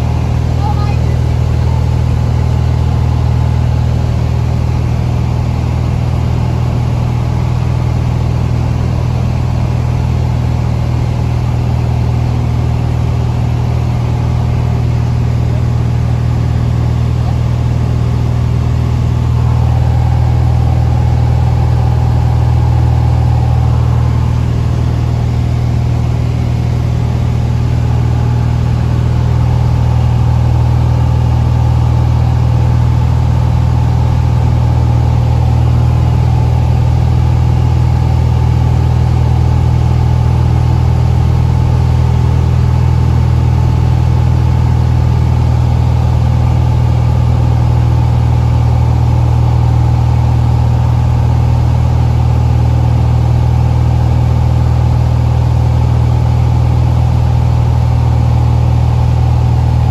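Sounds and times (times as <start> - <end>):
light aircraft engine droning: 10.6 - 33.6.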